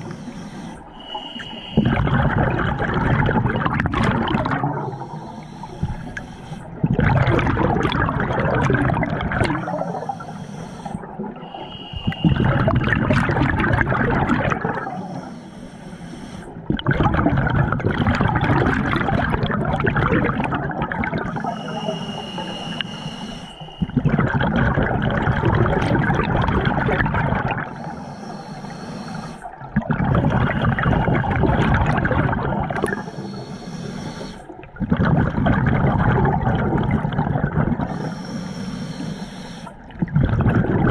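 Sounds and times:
hissing regulator inhalations: 0.0s - 2.7s, 4.3s - 7.1s, 7.8s - 16.8s, 20.2s - 24.2s, 25.4s - 31.4s, 32.6s - 34.8s, 37.7s - 39.9s
thin whistle: 0.9s - 2.0s, 11.4s - 12.7s, 21.4s - 24.0s
exhaled bubble bursts: 1.0s - 10.2s, 10.8s - 15.2s, 16.6s - 23.0s, 23.6s - 27.8s, 29.4s - 33.4s, 34.4s - 38.1s, 39.7s - 40.9s.

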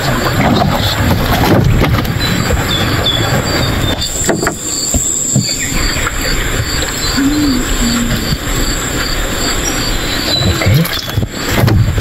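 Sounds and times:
high-pitched whine: 4.1s - 11.1s.

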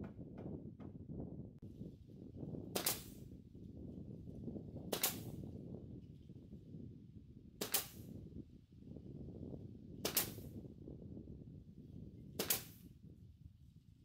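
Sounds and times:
nail gun shots: 2.7s - 3.2s, 4.9s - 5.4s, 7.6s - 8.1s, 10.0s - 10.5s, 12.4s - 12.9s.

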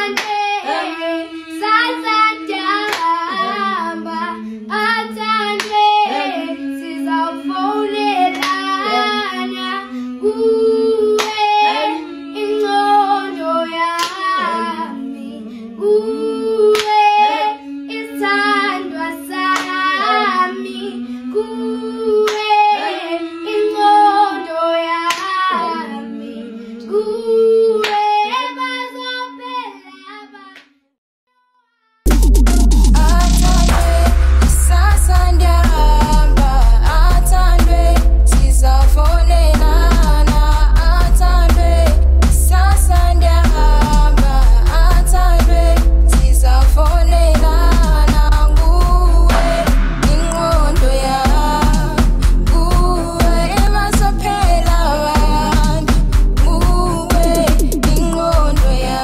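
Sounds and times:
girls singing in harmony: 0.0s - 30.4s, 33.1s - 59.0s
hand clapping: 0.2s - 0.4s, 2.9s - 3.1s, 5.6s - 5.8s, 8.3s - 8.6s, 11.2s - 11.4s, 14.0s - 14.3s, 16.7s - 17.0s, 22.3s - 22.5s.

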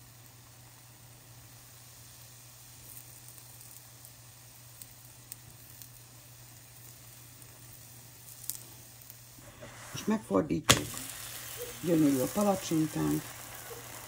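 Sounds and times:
batter sizzling in a pan: 0.0s - 14.0s.

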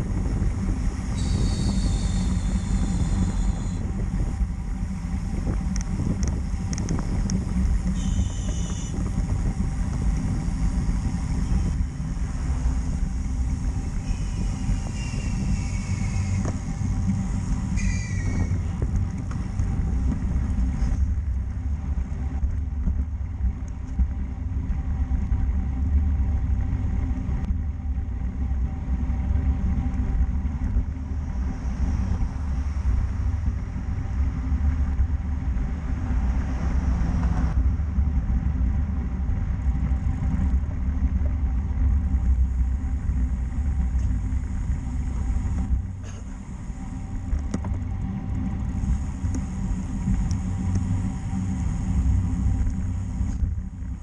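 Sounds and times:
road noise: 0.0s - 54.0s
wind buffeting microphone: 0.0s - 54.0s.

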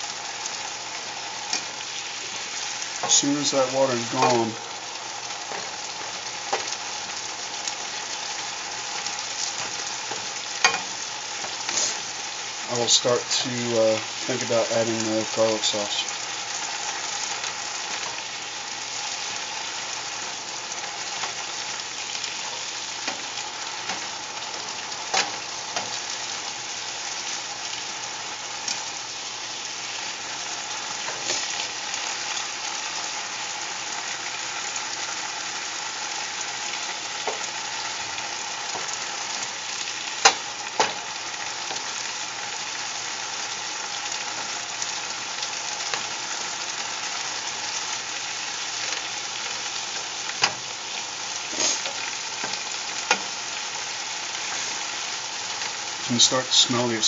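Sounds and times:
vegetables sizzling in a hot pan: 0.0s - 57.0s.

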